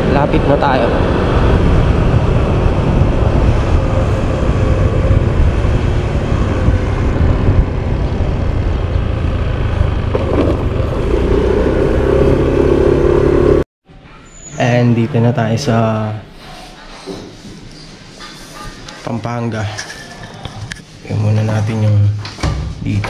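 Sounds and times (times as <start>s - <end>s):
wind buffeting microphone: 0.0s - 13.2s
motorcycle engine hum: 0.0s - 13.7s.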